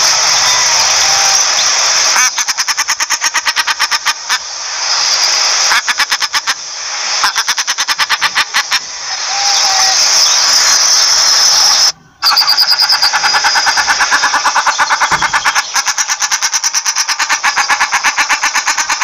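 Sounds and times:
steady hiss: 0:00.0 - 0:19.0
duck calling in rapid notes: 0:02.1 - 0:04.4, 0:05.7 - 0:06.6, 0:07.2 - 0:08.9, 0:12.2 - 0:19.0.

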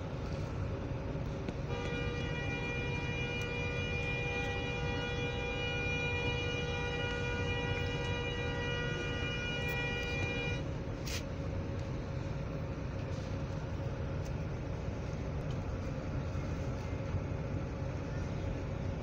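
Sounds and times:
traffic rumble: 0:00.0 - 0:19.0
vehicle horn long note: 0:01.6 - 0:10.6.

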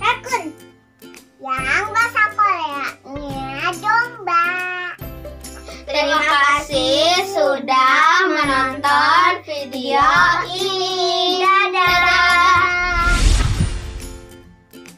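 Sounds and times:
children singing together: 0:05.9 - 0:13.1.

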